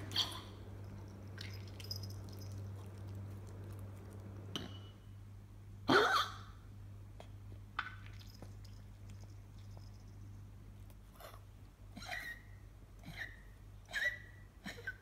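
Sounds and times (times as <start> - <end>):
small dog coughing: 5.9 - 6.6, 11.2 - 15.0.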